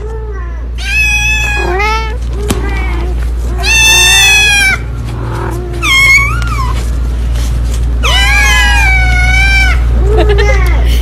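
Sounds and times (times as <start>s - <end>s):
kitten meowing: 3.6s - 4.9s, 8.0s - 9.8s.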